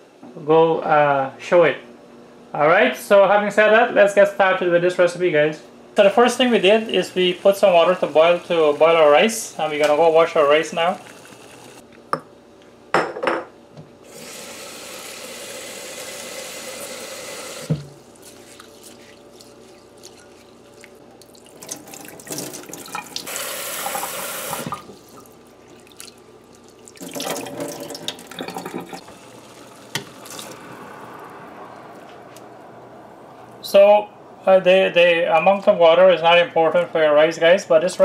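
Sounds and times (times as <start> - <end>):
rice rinsed by hand: 6.0 - 11.8, 14.1 - 30.7.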